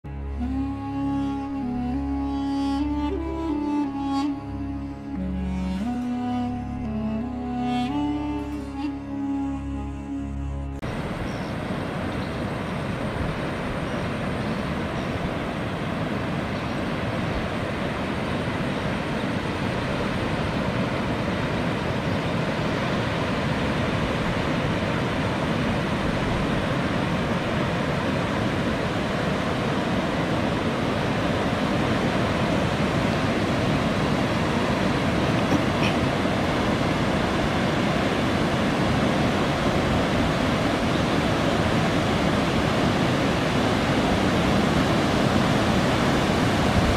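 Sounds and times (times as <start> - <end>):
wave rushing up a river: 10.8 - 46.9.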